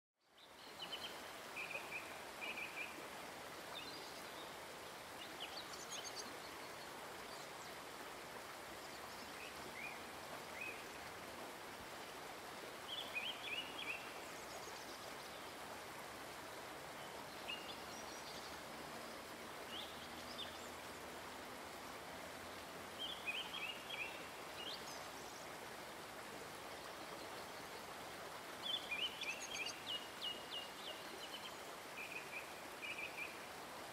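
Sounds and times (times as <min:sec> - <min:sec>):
flowing stream water: 0:00.2 - 0:33.9.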